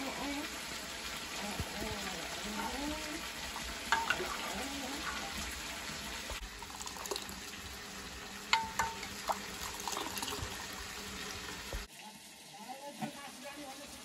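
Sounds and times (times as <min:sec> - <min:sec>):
ladle stirring thick liquid: 0:02.4 - 0:07.4, 0:08.5 - 0:10.6
metallic clinks against pot: 0:03.9 - 0:04.2, 0:08.5 - 0:09.2.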